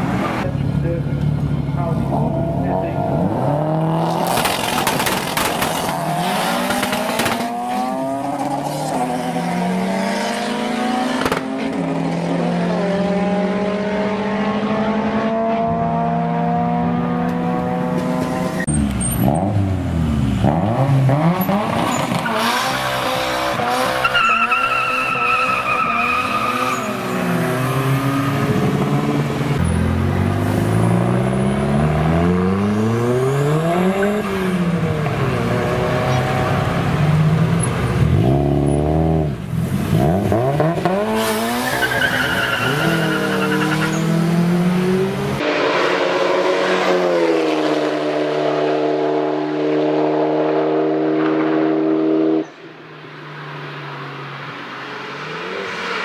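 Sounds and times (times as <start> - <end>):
car engine revving hard: 2.2 - 18.6, 20.4 - 37.3, 38.0 - 52.5.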